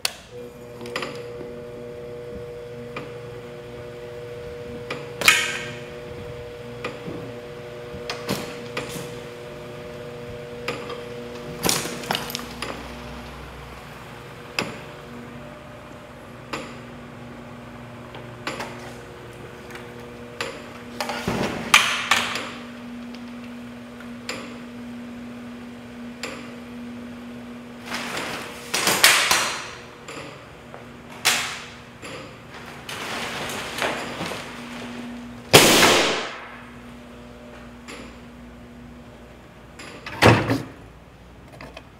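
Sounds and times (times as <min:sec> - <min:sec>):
electric motor hum: 0:00.1 - 0:32.0.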